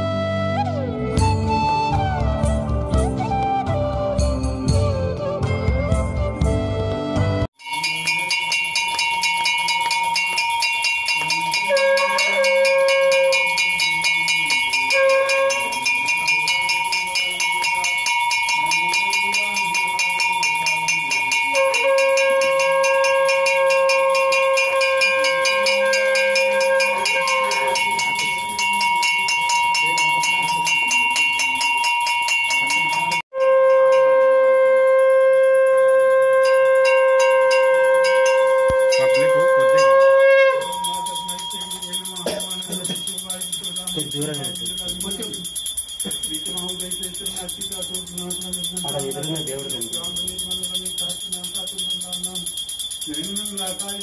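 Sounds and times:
low tune: 0:00.0 - 0:17.8
bell rung rapidly: 0:07.6 - 0:54.0
conch shell blasts: 0:08.5 - 0:18.5, 0:19.1 - 0:28.4, 0:33.3 - 0:43.1.

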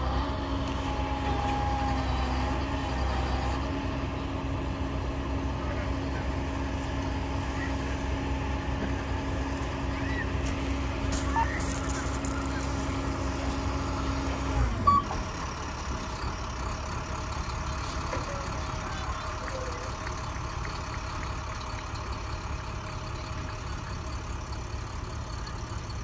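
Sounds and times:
hydraulics humming under load: 0:00.0 - 0:26.0
truck engine idling: 0:00.0 - 0:26.0.

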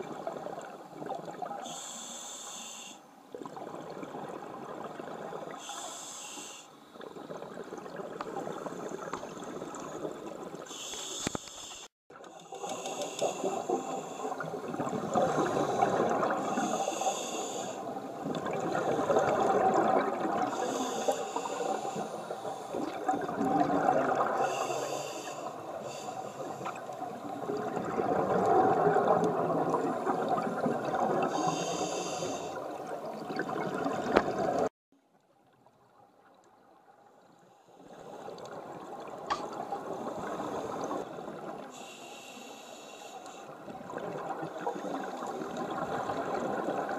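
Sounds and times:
regulator inhale hiss: 0:01.6 - 0:03.1, 0:05.6 - 0:06.8, 0:10.7 - 0:14.5, 0:15.1 - 0:18.0, 0:20.5 - 0:22.9, 0:24.4 - 0:26.9, 0:31.3 - 0:32.7, 0:41.6 - 0:43.6.

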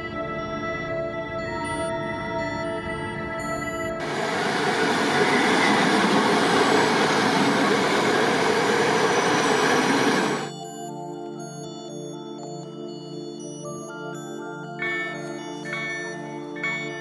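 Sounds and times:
music: 0:00.0 - 0:17.0
train wheels rushing on rails: 0:04.0 - 0:10.5.

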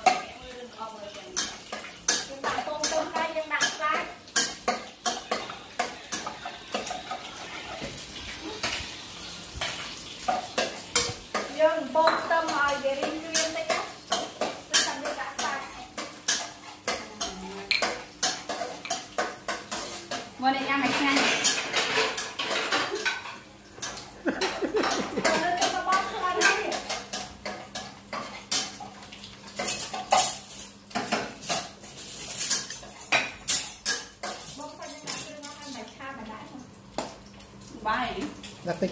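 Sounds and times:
food sizzling in a pan: 0:00.0 - 0:38.9
spatula scraping a wok: 0:01.4 - 0:11.5
chopsticks clinking on dishes: 0:20.9 - 0:28.8.

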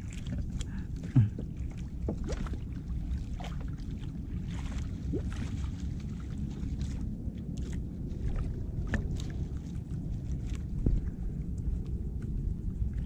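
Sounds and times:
water lapping at a boat hull: 0:00.0 - 0:13.0
wind on the microphone: 0:00.0 - 0:13.0
small knocks on a boat: 0:00.1 - 0:02.7, 0:10.4 - 0:12.4.

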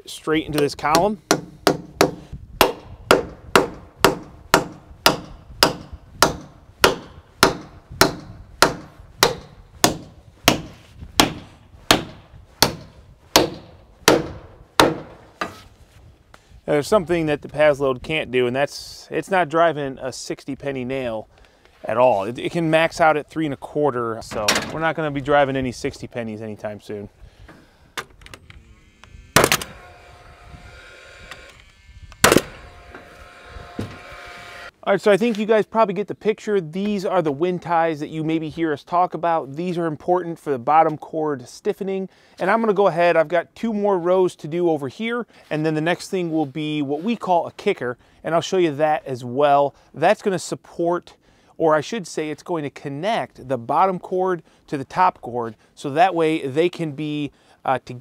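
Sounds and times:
hammer striking spike into wood: 0:00.9 - 0:15.6, 0:29.4 - 0:29.8, 0:32.2 - 0:32.6
fan whirring: 0:28.1 - 0:34.7
nail gun firing crack: 0:29.0 - 0:30.0, 0:31.2 - 0:33.1.

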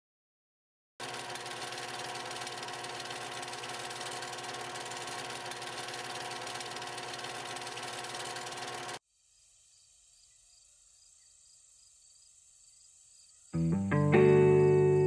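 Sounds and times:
film projector whirring and rattling: 0:01.0 - 0:09.0.

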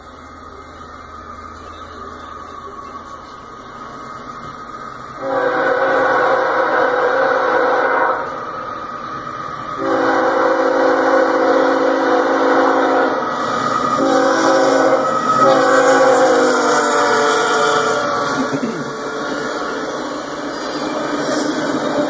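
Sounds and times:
train rumble: 0:00.0 - 0:22.0
locomotive air horn: 0:05.2 - 0:08.4, 0:09.8 - 0:19.7.

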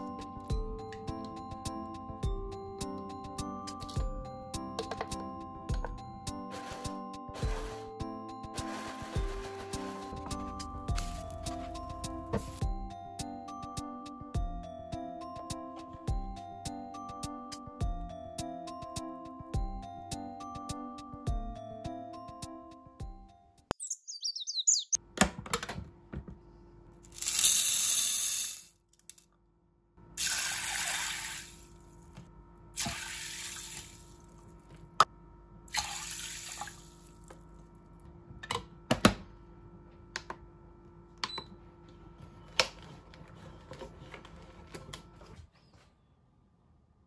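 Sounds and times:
water pouring into a pot: 0:30.2 - 0:31.7, 0:32.8 - 0:34.0, 0:35.7 - 0:37.1.

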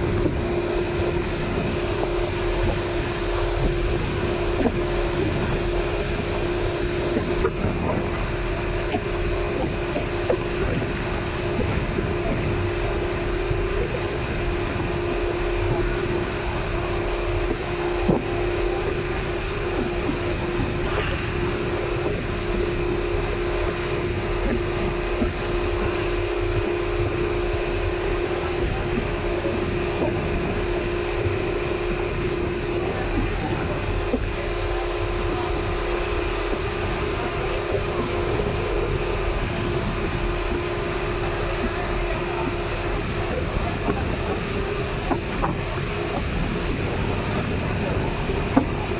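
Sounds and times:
boat engine droning: 0:00.0 - 0:48.9.

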